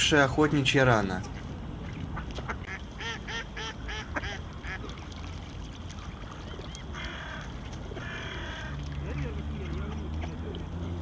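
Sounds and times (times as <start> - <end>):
duck quacking: 2.5 - 4.8.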